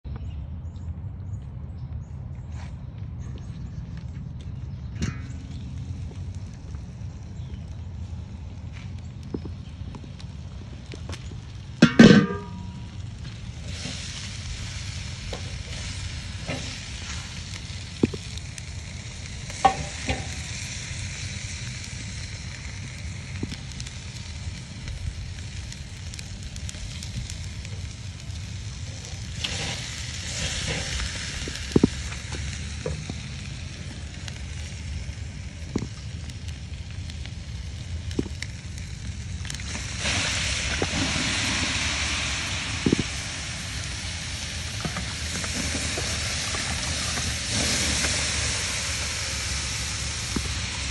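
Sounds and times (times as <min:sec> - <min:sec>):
low rumble: 0:00.0 - 0:50.9
meat sizzling on a grill: 0:04.8 - 0:50.9.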